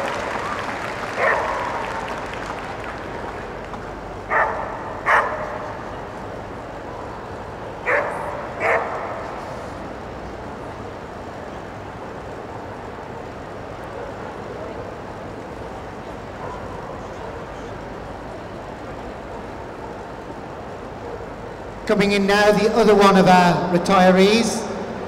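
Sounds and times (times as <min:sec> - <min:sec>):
murmur of indoor crowd: 0:00.0 - 0:25.0
dog barking: 0:01.2 - 0:01.8, 0:04.3 - 0:05.6, 0:07.8 - 0:09.2, 0:16.4 - 0:17.2.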